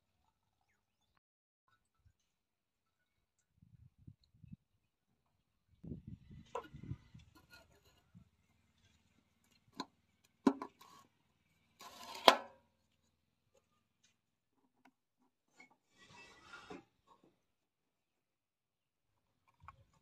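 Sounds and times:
cap scraping shut with clack: 11.8 - 12.5.

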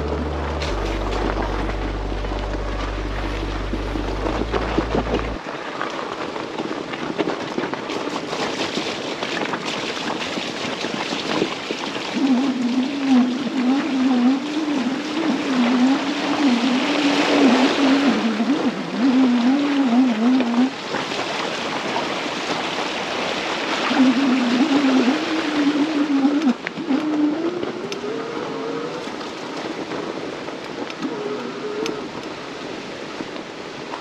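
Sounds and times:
low music notes: 0.0 - 5.4
bike tyres on stony trail: 0.0 - 18.7.

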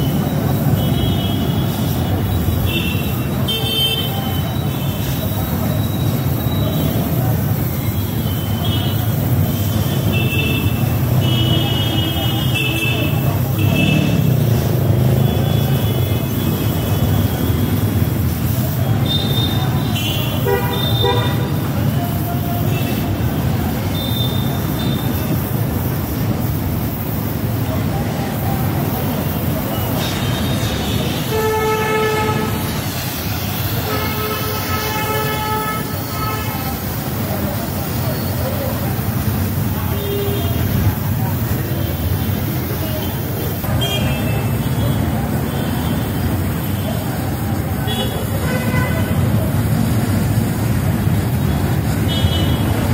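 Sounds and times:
vehicle horn long notes: 19.1 - 21.5, 31.2 - 32.8.

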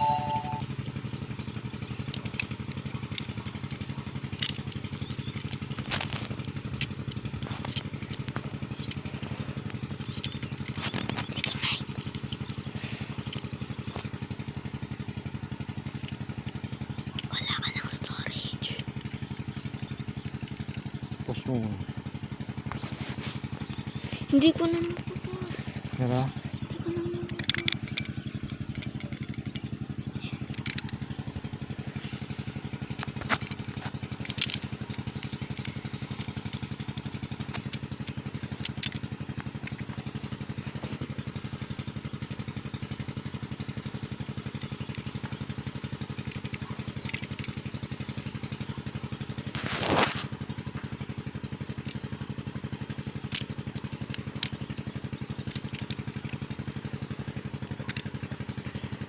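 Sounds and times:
small engine running: 0.0 - 59.0
light clicks and scrapes: 2.1 - 14.2, 22.6 - 26.0, 49.4 - 50.9.

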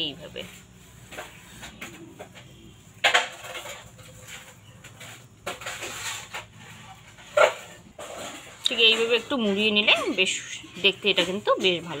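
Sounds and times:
dough squishing and rustling: 0.0 - 2.8.

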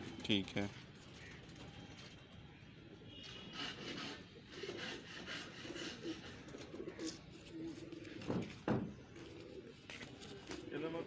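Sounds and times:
pigeons cooing: 2.9 - 11.0.

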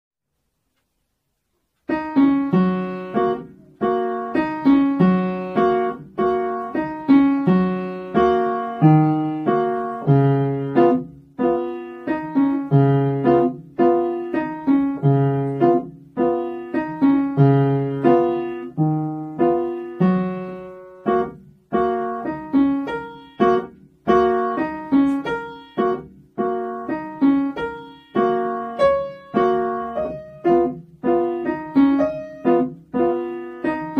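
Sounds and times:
child playing piano: 1.8 - 33.9.

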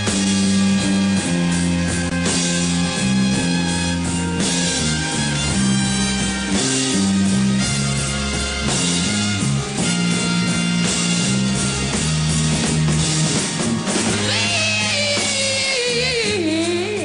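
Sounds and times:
bass guitar: 0.0 - 17.0
drum kit: 0.0 - 17.0
electric guitar: 0.0 - 17.0.

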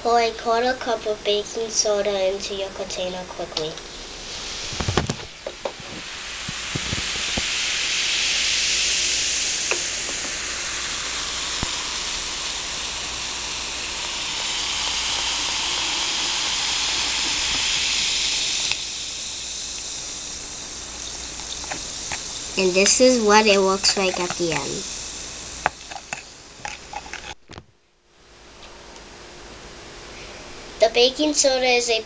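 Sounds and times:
fizzing bubbles hissing: 1.2 - 27.4.

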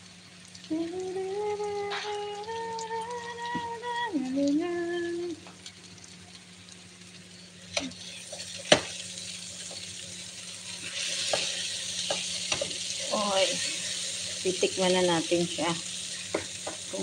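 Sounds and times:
meat and vegetables frying in pot: 0.0 - 17.0
spatula knocking against pan: 16.3 - 16.9.

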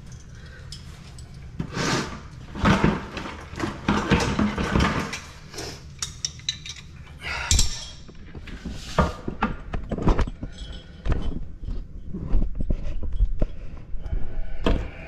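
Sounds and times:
knocks and clatter of tools: 2.5 - 13.8.

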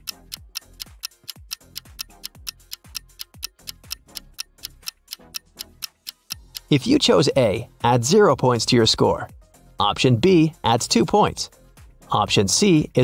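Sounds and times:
clock ticking: 0.0 - 8.2
background music with thumping beat: 0.0 - 13.0.

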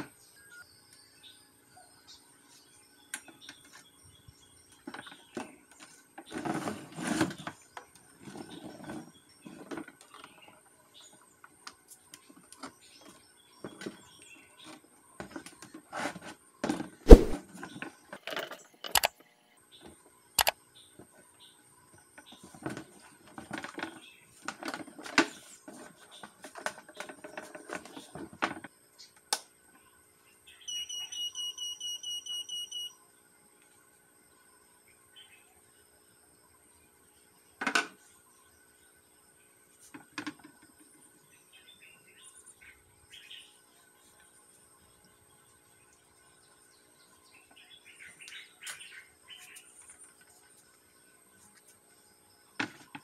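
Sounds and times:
scale buzzer high beeps: 30.7 - 33.0.

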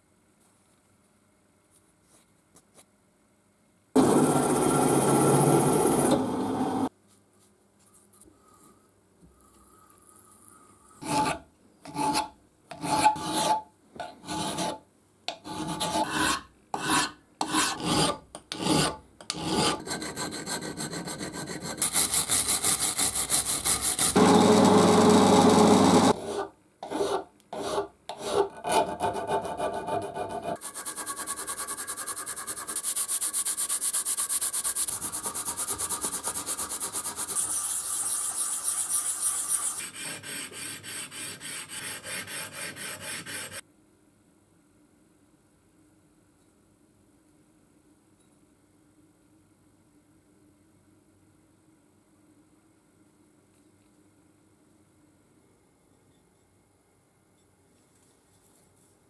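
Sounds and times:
drill press running: 4.0 - 6.9, 24.2 - 26.2
rasping strokes on steel: 30.2 - 43.6
fast rubbing on steel: 30.6 - 43.6
oilstone rubbing on steel: 30.6 - 43.6.

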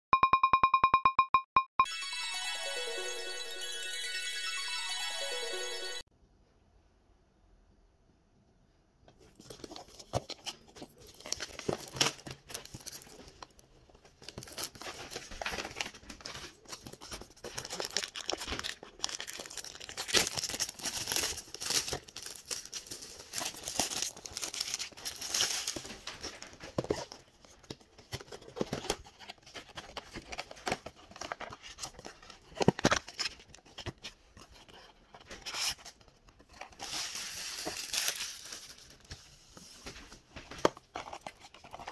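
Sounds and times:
plastic shrink-wrap crinkling: 10.9 - 27.7
wrapping paper tearing: 17.6 - 26.1.

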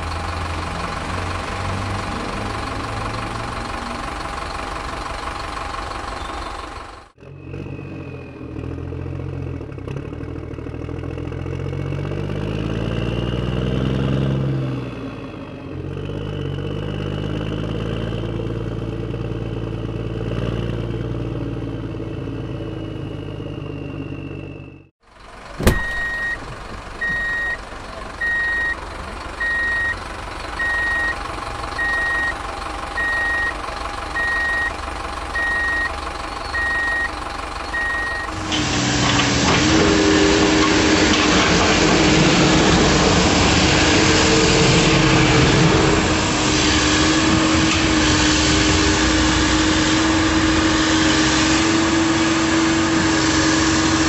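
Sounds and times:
heavy truck engine running: 0.0 - 54.0
reversing alarm beeping: 25.6 - 26.4, 27.0 - 27.6, 28.2 - 28.8, 29.4 - 30.0, 30.6 - 31.2, 31.8 - 32.4, 33.0 - 33.6, 34.2 - 38.4.

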